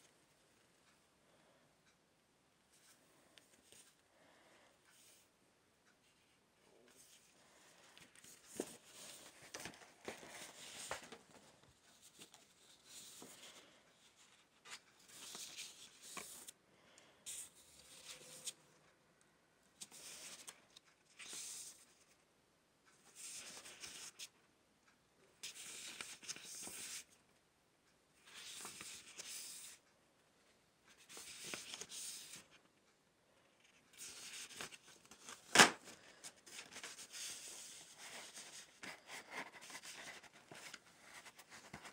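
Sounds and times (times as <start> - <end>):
paper sheets rustling: 6.9 - 13.7, 34.0 - 41.9.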